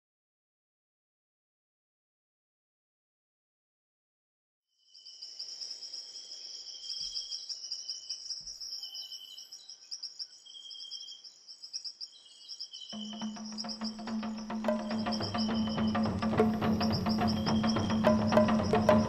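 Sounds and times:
high insect trills: 4.8 - 19.0
insects chirping drone: 4.8 - 19.0
low sustained music tone: 13.0 - 19.0.

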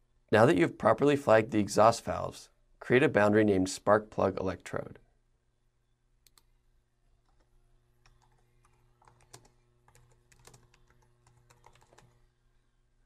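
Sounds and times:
typing on a computer keyboard: 7.2 - 12.2.

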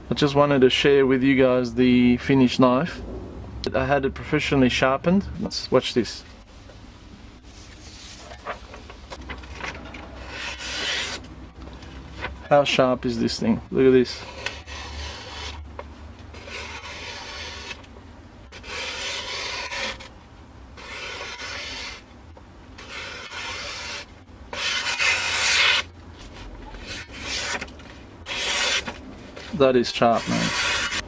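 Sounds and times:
knife slicing paper: 16.4 - 17.8, 18.5 - 20.1, 20.8 - 22.0, 22.8 - 25.9, 26.8 - 27.7, 28.3 - 31.0.

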